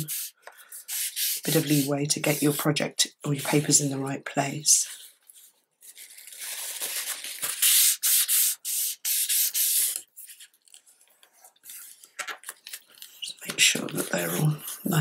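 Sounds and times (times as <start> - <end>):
paper towel rubbing on paper: 0.0 - 2.7, 3.3 - 3.9, 7.4 - 10.4.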